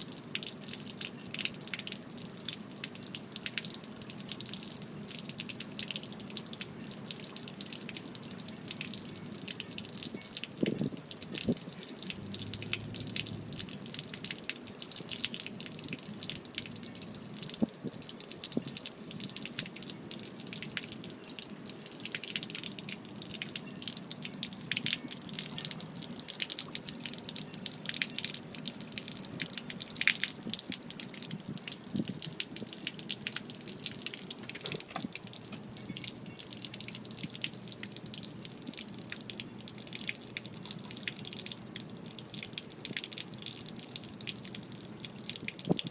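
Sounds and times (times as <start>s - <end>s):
water splattering onto pavement: 0.0s - 45.9s.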